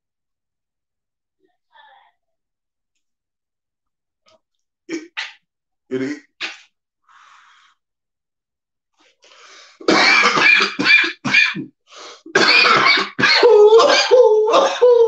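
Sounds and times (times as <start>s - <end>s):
man coughing: 9.8s - 11.7s, 12.3s - 15.0s.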